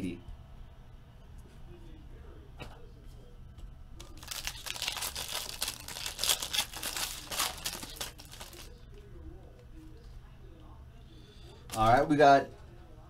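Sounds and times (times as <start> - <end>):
foil wrapper tearing and crinkling: 4.0 - 8.7.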